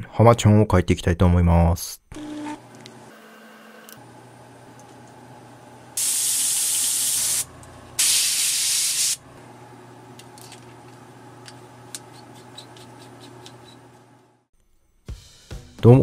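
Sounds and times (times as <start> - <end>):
airbrush hissing air: 6.0 - 9.2.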